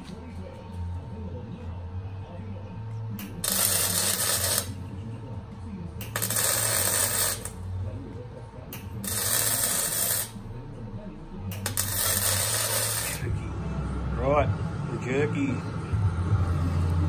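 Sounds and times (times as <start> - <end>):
arc welding crackling: 3.2 - 4.8, 6.0 - 7.6, 8.8 - 10.4, 11.5 - 13.3.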